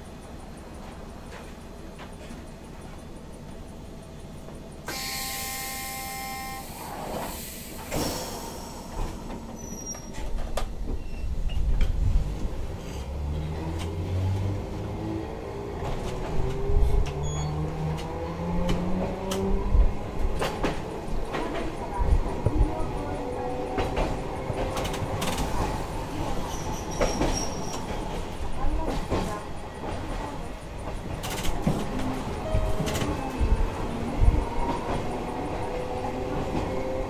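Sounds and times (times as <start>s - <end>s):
tram motor hum rising: 0.0s - 37.0s
brief tone: 4.9s - 6.9s, 8.8s - 10.3s, 10.9s - 11.6s, 17.2s - 17.6s, 32.4s - 33.6s
short air hiss: 6.7s - 8.9s
wheels clattering on rails: 7.1s - 37.0s.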